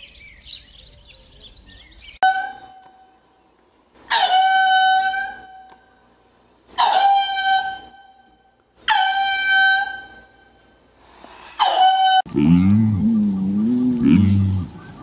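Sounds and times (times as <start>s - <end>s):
high-pitched animal call: 11.6s - 15.0s.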